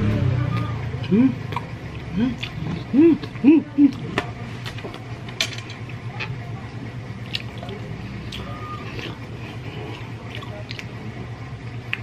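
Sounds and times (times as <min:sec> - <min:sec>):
wet chewing and squishing: 0:01.4 - 0:05.1, 0:07.2 - 0:11.1.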